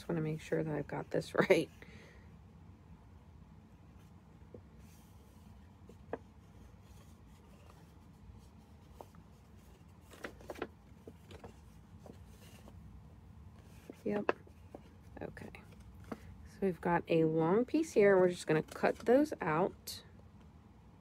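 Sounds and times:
paper rustling: 4.8 - 13.0.

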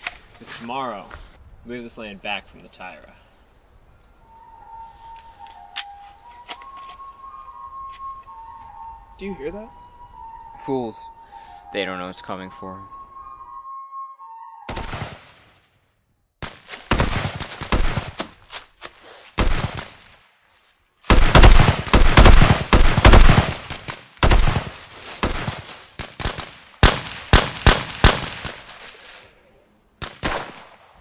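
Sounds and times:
rifle fire in rapid bursts: 16.4 - 18.2, 19.4 - 20.0, 21.1 - 28.6, 30.0 - 30.8.

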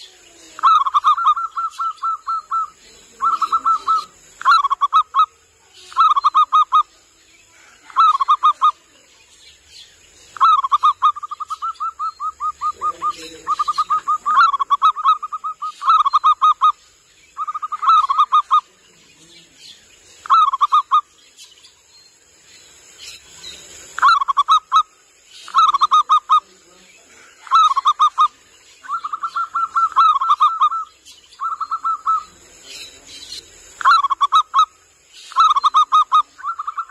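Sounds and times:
dove cooing: 0.0 - 5.3, 10.4 - 16.7, 27.4 - 32.4.

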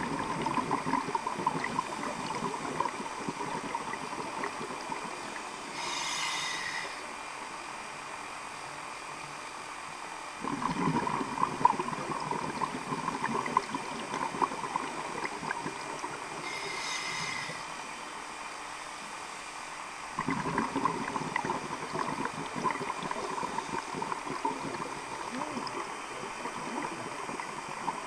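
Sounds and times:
exhaled bubbles gurgling: 0.0 - 7.0, 10.4 - 17.6, 20.2 - 28.0
regulator hissing inhalation: 5.6 - 7.1, 16.4 - 17.8.

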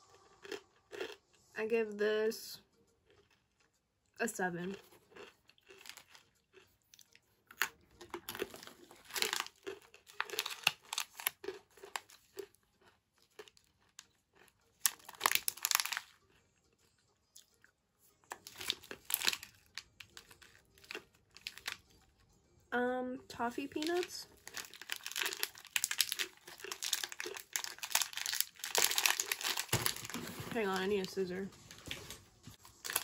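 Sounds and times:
crunchy chewing: 0.0 - 1.4, 4.6 - 22.1, 23.8 - 30.2, 31.8 - 33.0
plastic packaging crinkling: 8.0 - 12.5, 13.6 - 16.2, 18.3 - 21.8, 23.6 - 33.0.

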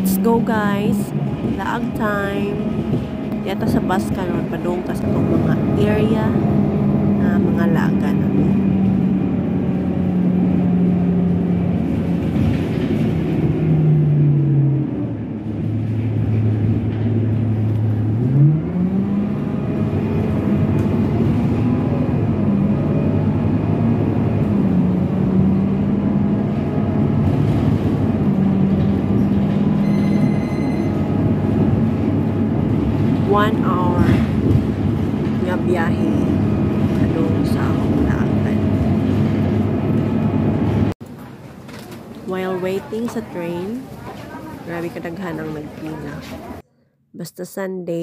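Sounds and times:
bus engine humming: 0.0 - 46.7
short high beep: 29.8 - 31.0.

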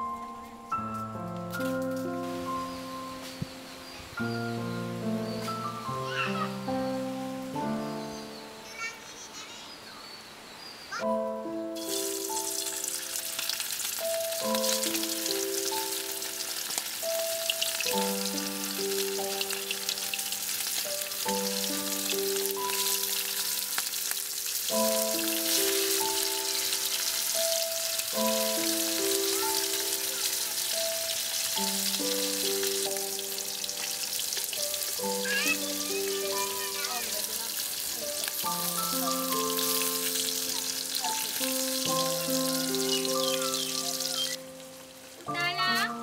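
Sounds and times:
gentle background music: 0.0 - 9.3, 11.0 - 46.0
food sizzling in hot oil: 11.7 - 46.0.

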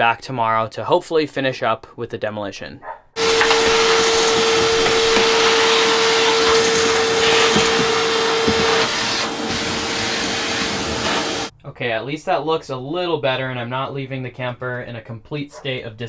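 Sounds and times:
shop vacuum running: 3.2 - 11.5
vacuum whine: 3.2 - 11.5.

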